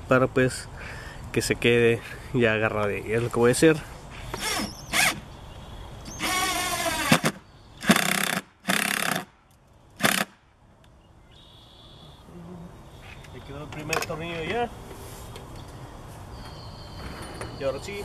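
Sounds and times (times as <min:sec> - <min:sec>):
cordless drill driving screw: 0:04.3 - 0:05.2, 0:06.1 - 0:09.2.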